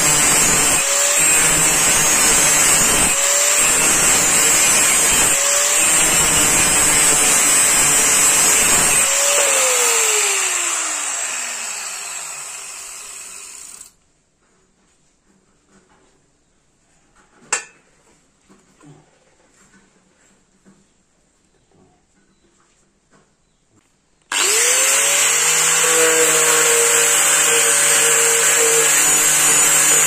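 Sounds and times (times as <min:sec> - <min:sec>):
angle grinder grinding steel: 0:00.0 - 0:13.9, 0:24.3 - 0:30.0.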